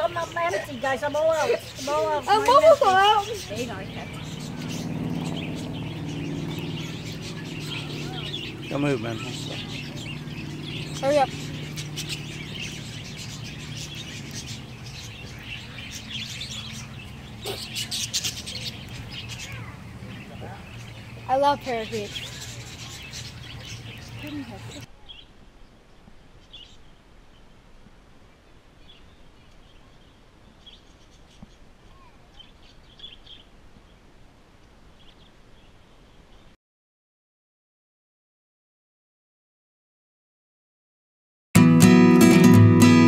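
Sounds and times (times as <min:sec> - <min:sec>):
budgerigars twittering: 0:00.0 - 0:24.9
parakeets chirping and chattering: 0:00.0 - 0:24.9
low steady hum: 0:00.0 - 0:25.0
outdoor background hiss: 0:00.0 - 0:36.6.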